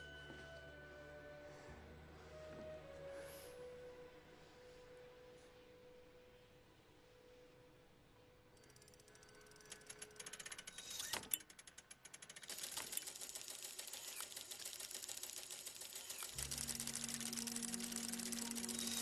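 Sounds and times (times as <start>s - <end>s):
clockwork gears ticking and clicking: 8.6s - 19.0s.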